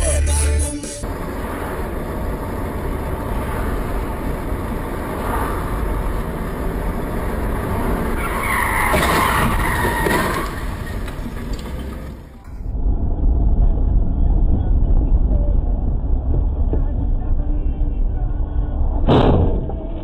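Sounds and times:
road and engine rumble: 0:00.0 - 0:20.0
tyres squealing: 0:03.3 - 0:12.4.

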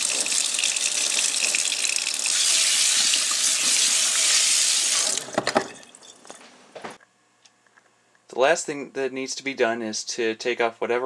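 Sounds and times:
faucet water splashing on metal: 0:00.0 - 0:06.0.

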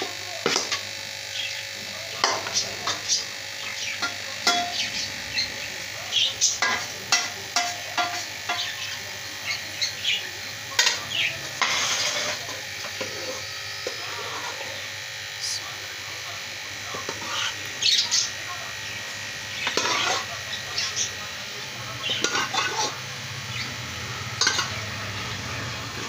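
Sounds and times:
steady hum: 0:00.0 - 0:26.0
metal spoon scraping pans: 0:00.4 - 0:00.9, 0:02.2 - 0:03.2, 0:03.8 - 0:05.1, 0:06.2 - 0:09.9, 0:10.7 - 0:14.9, 0:16.8 - 0:18.3, 0:19.4 - 0:21.1, 0:21.9 - 0:23.0, 0:24.3 - 0:25.2.

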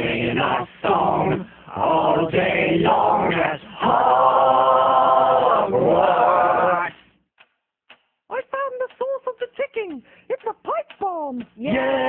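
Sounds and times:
voices chanting a cappella: 0:00.0 - 0:07.0, 0:11.6 - 0:12.0.

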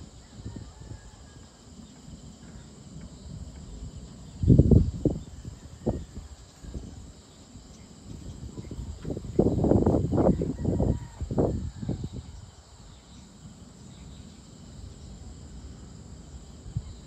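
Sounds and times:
insect chorus: 0:00.0 - 0:17.0.

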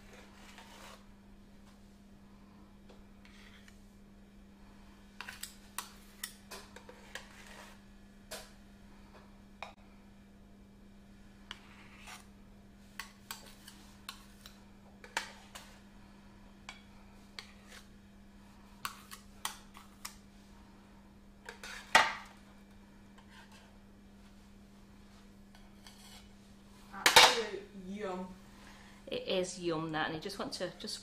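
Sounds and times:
metal spatulas on baking tray: 0:05.2 - 0:07.8, 0:13.0 - 0:15.8, 0:21.4 - 0:22.3, 0:25.5 - 0:26.3, 0:27.0 - 0:27.6.

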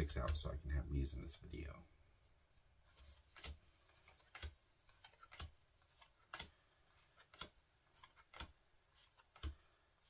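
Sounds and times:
trading cards flipping clicks: 0:03.0 - 0:09.6.

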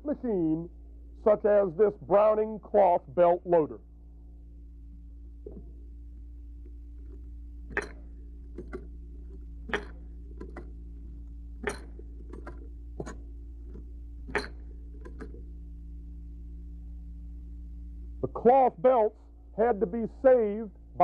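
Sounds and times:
steady low hum: 0:00.0 - 0:21.0
belt loading machine clacking: 0:07.7 - 0:10.8, 0:11.6 - 0:15.4.

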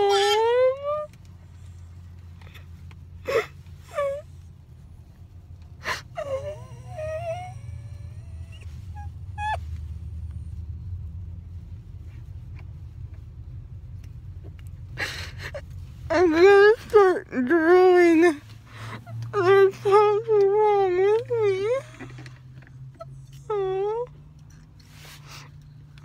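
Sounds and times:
low steady hum: 0:00.0 - 0:26.0
woman sobbing: 0:03.2 - 0:04.1, 0:15.0 - 0:16.4
high whimpering cries: 0:03.2 - 0:04.4, 0:05.8 - 0:09.7, 0:18.8 - 0:22.2.

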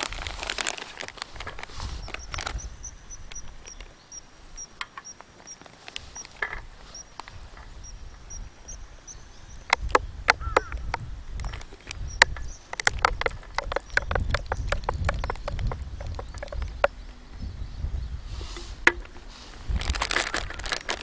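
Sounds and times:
plastic bag rustling: 0:00.0 - 0:02.8, 0:18.3 - 0:21.0.

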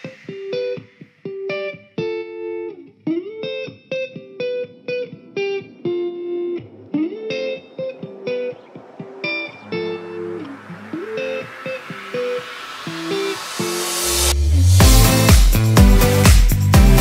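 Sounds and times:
plucked guitar melody: 0:00.0 - 0:13.4.

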